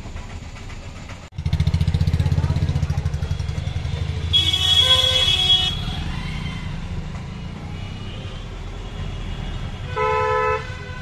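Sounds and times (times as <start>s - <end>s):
road traffic hum: 0.0s - 11.0s
vehicle horn honking: 3.2s - 6.1s, 7.5s - 11.0s.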